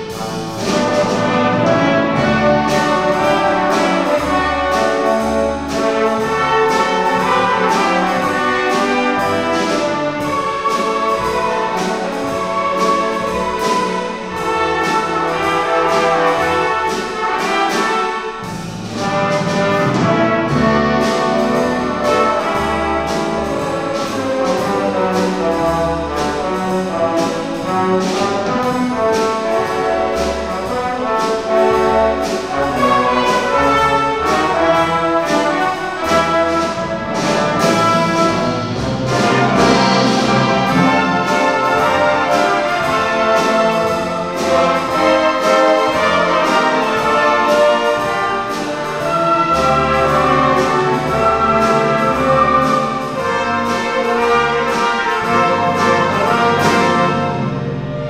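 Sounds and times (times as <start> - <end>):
brass: 0.0 - 58.0
woodwinds: 0.0 - 58.0
steady beat: 18.4 - 58.0
strings: 32.2 - 58.0.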